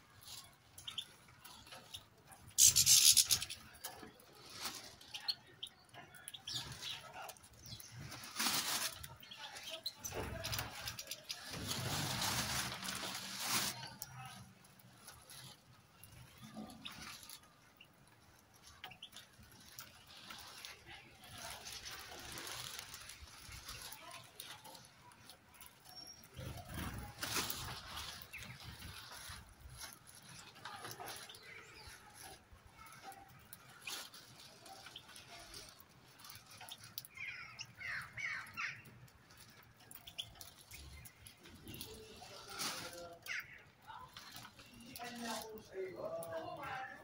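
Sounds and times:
birds pecking and rustling: 0.0s - 47.0s
high bird chirps: 2.6s - 3.6s.

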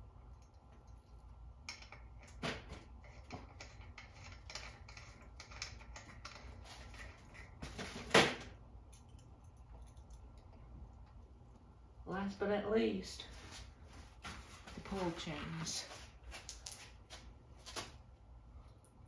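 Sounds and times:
metal clicks and scrapes: 3.0s - 7.6s.

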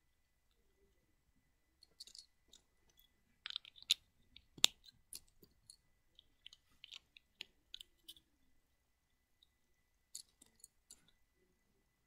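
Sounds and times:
plastic bricks clicking: 1.8s - 8.2s, 10.1s - 11.2s.

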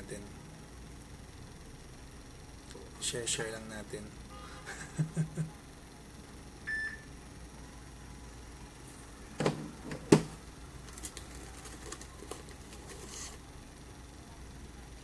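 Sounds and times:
short beep: 6.7s - 7.1s.

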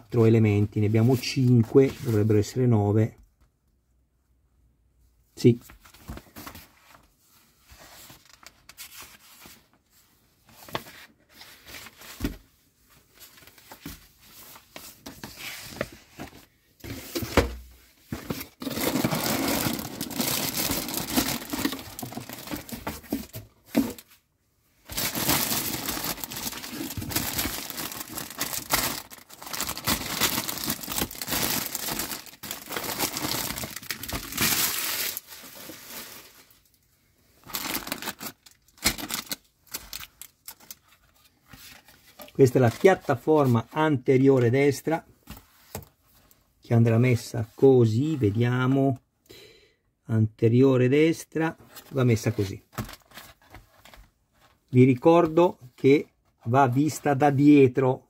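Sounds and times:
plastic bag crinkling: 18.6s - 24.0s, 24.9s - 36.7s, 37.4s - 40.8s.

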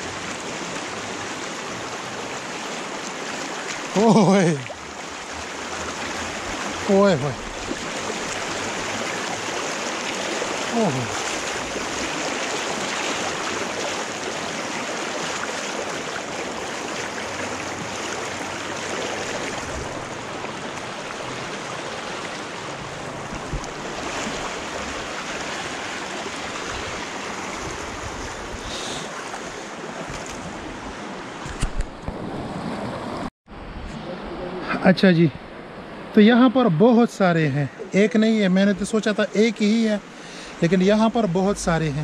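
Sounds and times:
stream rushing and splashing: 0.0s - 42.0s
feet wading through water: 0.1s - 31.2s.

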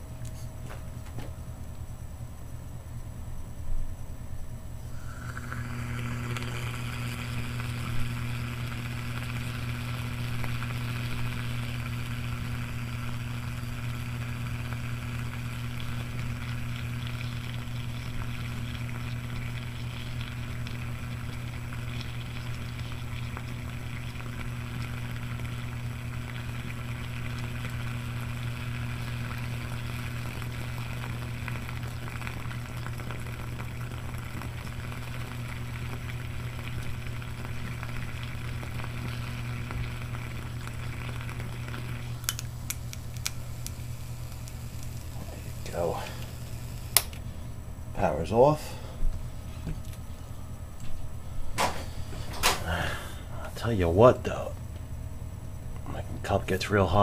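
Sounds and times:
heater humming: 0.0s - 57.0s
water bubbling and hissing: 4.8s - 42.3s, 42.9s - 47.0s.

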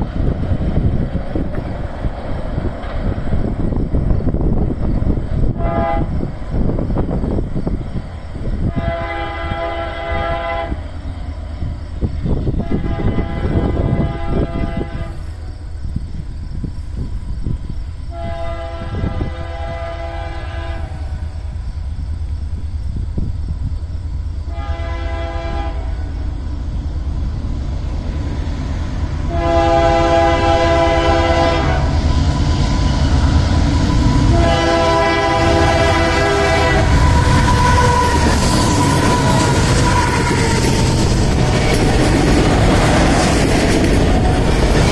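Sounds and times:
train rumbling: 0.0s - 44.9s
train air horn blasts: 5.5s - 6.2s, 8.6s - 10.9s, 12.5s - 15.4s, 18.1s - 21.2s, 24.5s - 26.1s, 29.3s - 32.6s, 33.7s - 41.2s.

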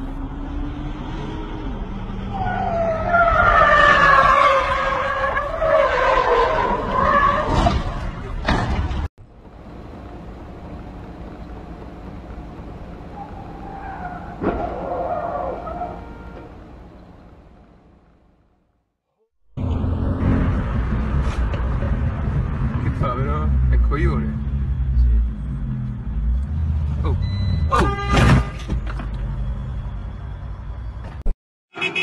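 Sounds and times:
road noise inside car: 0.0s - 18.6s
car tyres squealing: 2.2s - 8.6s, 13.1s - 16.6s
car crashes: 6.2s - 9.1s, 27.8s - 29.2s.

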